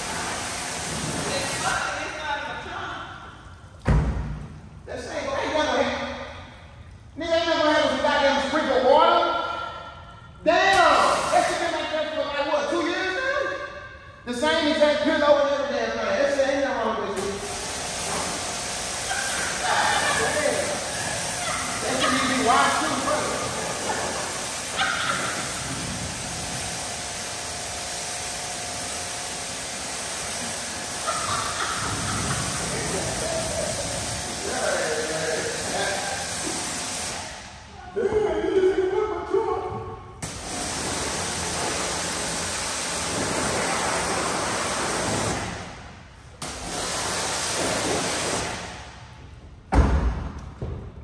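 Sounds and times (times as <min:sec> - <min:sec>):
pressure washer spraying water: 0:00.0 - 0:02.5, 0:10.7 - 0:12.5, 0:17.2 - 0:37.7, 0:40.2 - 0:48.9.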